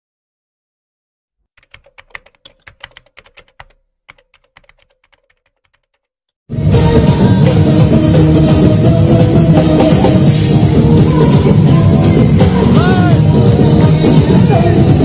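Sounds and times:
computer keyboard typing: 1.5 - 6.1
loud music with drums: 6.5 - 15.0.

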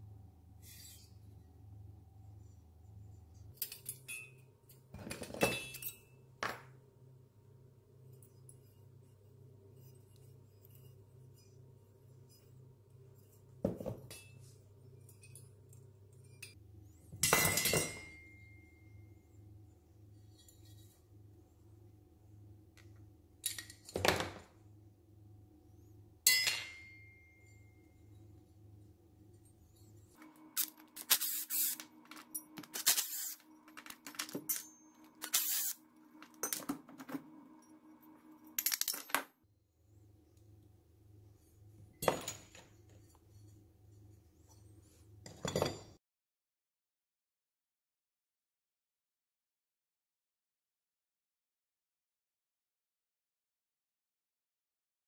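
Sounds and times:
metal parts clinking together: 3.6 - 4.4, 23.4 - 24.1, 30.6 - 37.0, 38.4 - 39.3.

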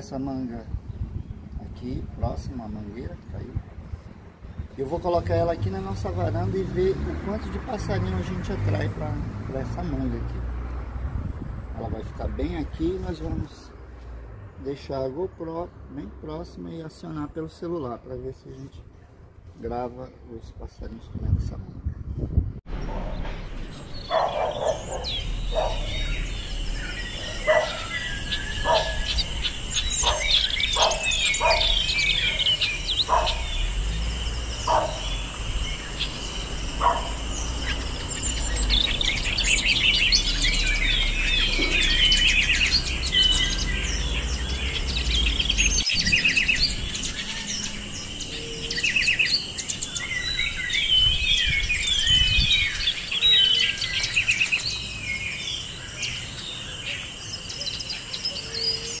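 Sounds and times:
songbirds chirping: 0.0 - 59.0
low-pitched bird calls: 21.8 - 59.0.

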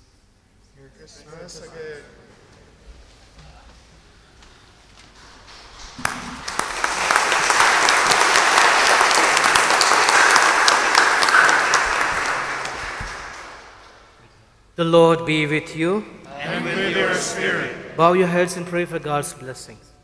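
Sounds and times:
crowd applause: 5.2 - 14.2.

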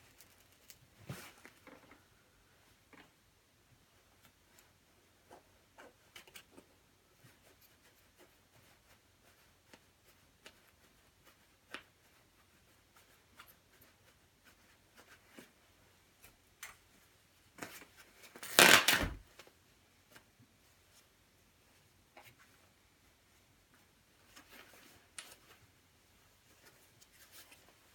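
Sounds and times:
fabric tearing: 18.4 - 19.2.

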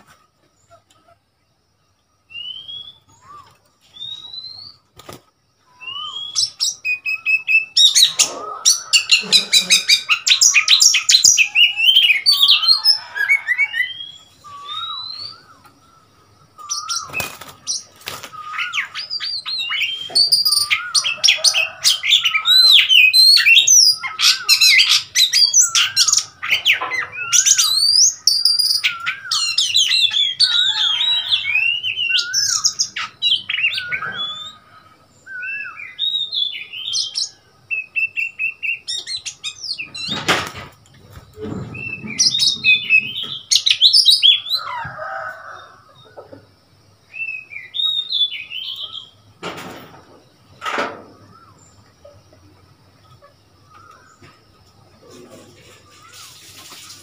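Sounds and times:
bird singing whistled phrases: 2.3 - 4.8, 5.7 - 8.2, 8.8 - 15.7, 27.1 - 34.6, 35.3 - 40.1, 47.2 - 49.2.

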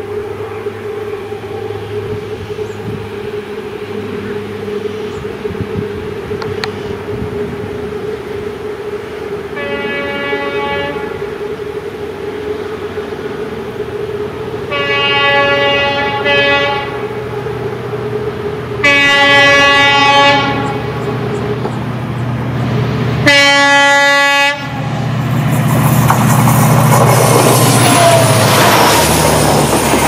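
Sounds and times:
diesel engine drone: 0.0 - 30.0
locomotive air horn: 9.5 - 11.5, 14.7 - 17.2, 18.8 - 21.0, 23.2 - 24.9, 27.5 - 29.2
train wheels rushing and clattering: 24.8 - 30.0.

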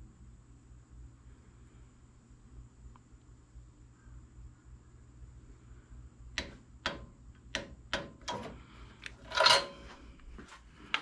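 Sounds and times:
metallic clatter: 8.0 - 8.6, 9.2 - 10.0.

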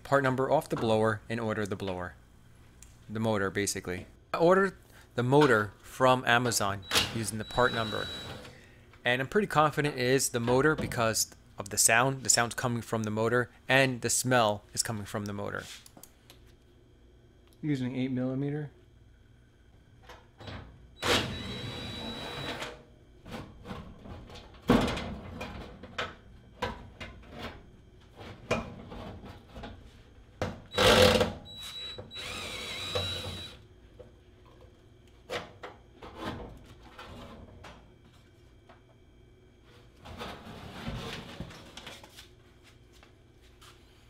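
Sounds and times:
cordless drill whine: 6.9 - 8.5, 21.0 - 22.6, 30.7 - 33.6.

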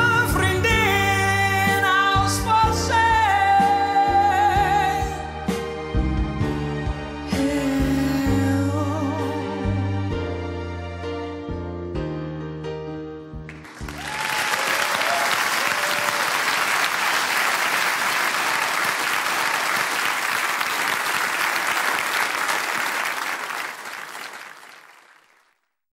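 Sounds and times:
piano notes: 0.0 - 14.3
audience applause: 13.5 - 25.7
audience cheer: 13.6 - 25.3.

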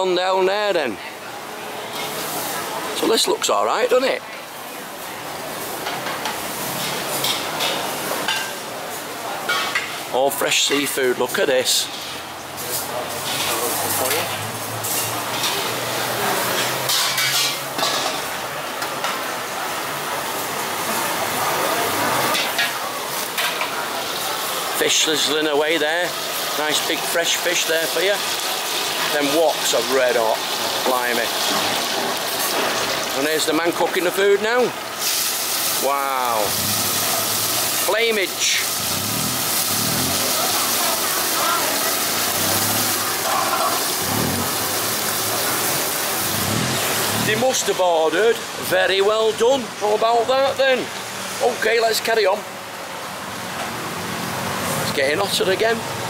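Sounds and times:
food sizzling in woks: 1.5 - 56.0
metal utensils clinking on pans: 5.8 - 8.7, 9.4 - 10.0, 11.7 - 19.3, 22.2 - 25.3
gas burner rushing hiss: 34.5 - 48.7
faint voices: 40.0 - 46.0.

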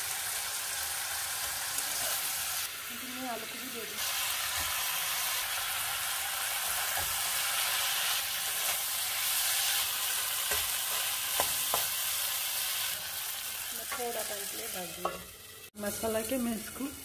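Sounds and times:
food sizzling in a pan: 0.0 - 17.0
metal spatula stirring: 6.5 - 12.1
spatula knocking on pan: 10.4 - 12.0.

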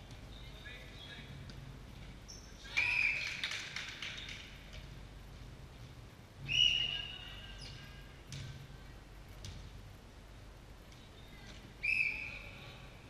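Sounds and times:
shoe squeal: 11.2 - 12.6.

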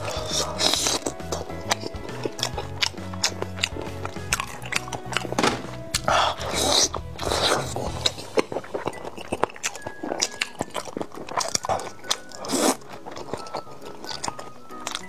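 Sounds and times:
background music: 0.0 - 15.0
lip smacks and chewing: 0.0 - 15.0
sucking slurps: 6.0 - 15.0.

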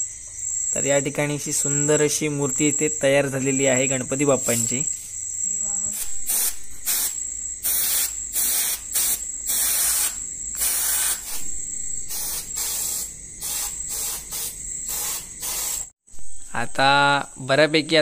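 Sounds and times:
paint sprayer hissing: 5.9 - 16.0.

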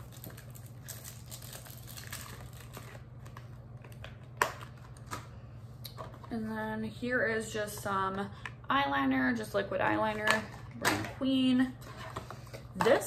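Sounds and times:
packaging clicks and crinkles: 0.0 - 5.3.

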